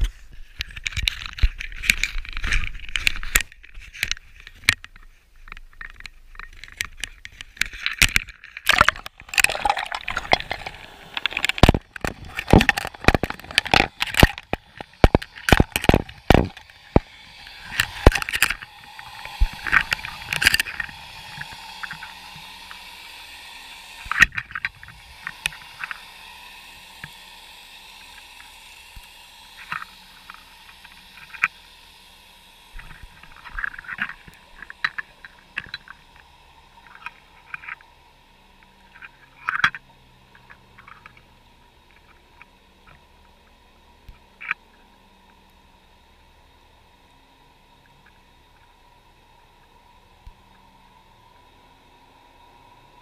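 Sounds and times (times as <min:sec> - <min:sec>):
camera knocking and scraping: 0:00.0 - 0:22.5
gurgling water: 0:00.0 - 0:53.0
steady underwater hum: 0:00.0 - 0:53.0.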